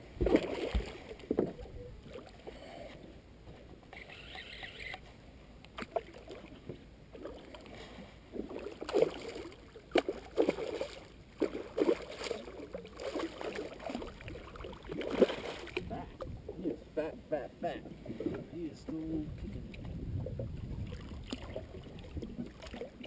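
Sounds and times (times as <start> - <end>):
fish thrashing and splashing: 0.2 - 2.4, 8.4 - 16.0, 19.8 - 23.0.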